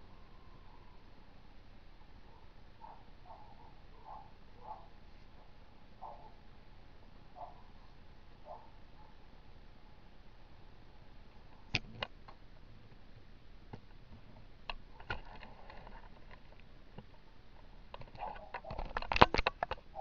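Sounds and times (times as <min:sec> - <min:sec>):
faint clicks and knocks: 0:13.7 - 0:20.0.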